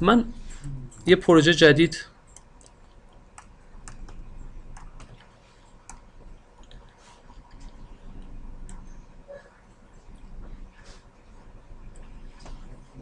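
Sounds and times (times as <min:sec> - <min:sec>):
faint room hum: 0:00.0 - 0:13.0
computer mouse clicks: 0:02.3 - 0:09.0.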